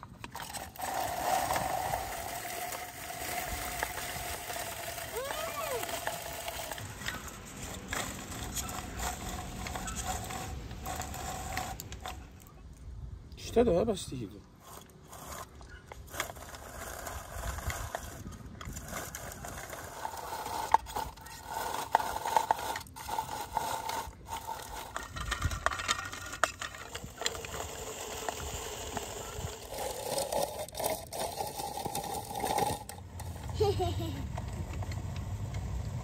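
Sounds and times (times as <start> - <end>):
rotary grater scraping and crunching: 0.0 - 12.7, 14.5 - 35.2
small clicks and rattles: 14.6 - 36.0.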